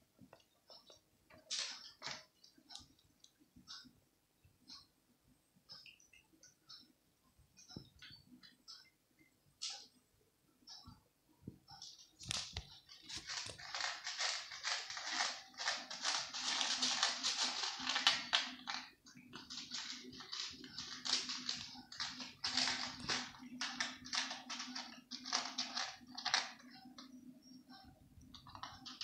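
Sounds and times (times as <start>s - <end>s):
cats crunching dry kibble: 12.3s - 26.6s.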